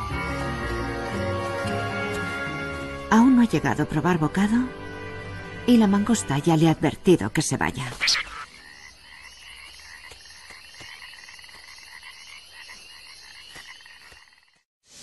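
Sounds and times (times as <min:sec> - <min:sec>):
frogs calling: 0:00.0 - 0:02.8, 0:07.6 - 0:14.6.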